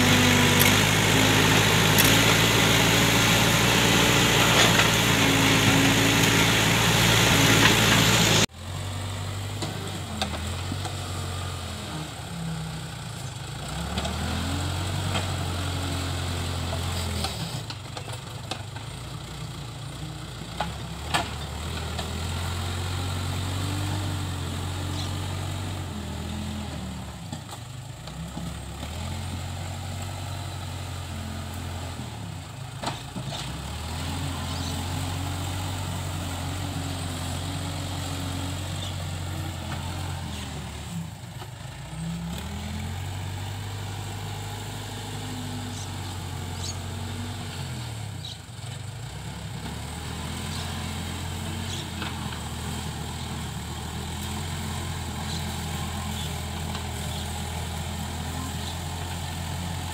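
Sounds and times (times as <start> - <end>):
backhoe diesel engine working: 0.0 - 59.9.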